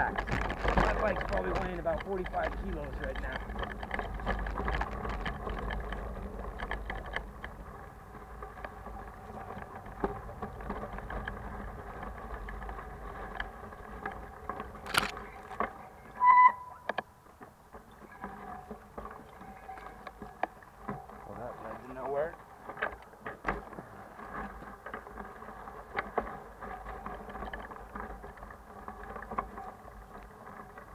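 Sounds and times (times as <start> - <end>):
bicycle rolling on dirt trail: 0.0 - 30.9
bike and luggage rattling: 0.0 - 30.9
high squeak: 16.2 - 16.9.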